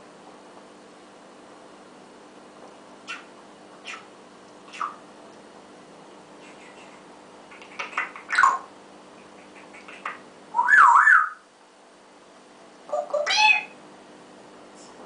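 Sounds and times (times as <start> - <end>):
parrot squawks and chirps: 3.1 - 4.1, 6.4 - 11.5, 12.9 - 13.8
parrot wavering whistle: 10.5 - 11.5.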